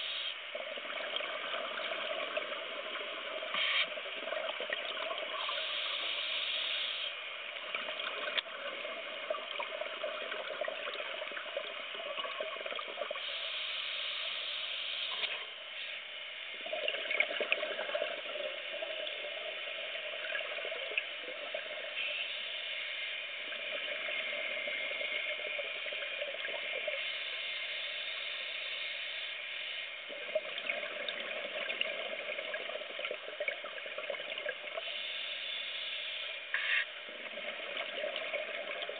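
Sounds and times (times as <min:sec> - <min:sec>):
steady rushing hiss: 0:00.0 - 0:00.6, 0:05.3 - 0:07.6, 0:13.2 - 0:16.6, 0:21.3 - 0:26.1, 0:26.8 - 0:30.1, 0:34.8 - 0:36.9
exhaled bubbles bursting: 0:16.6 - 0:21.8, 0:30.1 - 0:34.8, 0:37.1 - 0:38.9.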